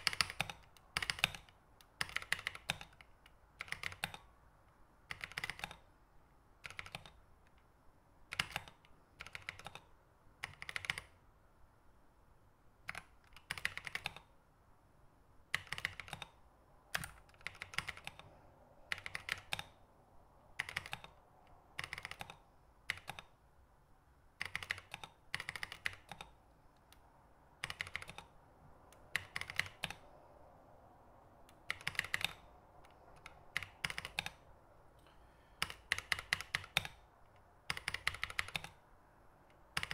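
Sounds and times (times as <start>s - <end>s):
keyboard keys clicking: 0.0s - 4.3s, 5.1s - 5.8s, 6.6s - 7.6s, 8.3s - 11.1s, 12.9s - 14.3s, 15.5s - 18.3s, 18.9s - 19.8s, 20.6s - 21.2s, 21.8s - 23.3s, 24.4s - 27.0s, 27.6s - 28.4s, 29.1s - 30.0s, 31.5s - 34.4s, 35.6s - 38.8s.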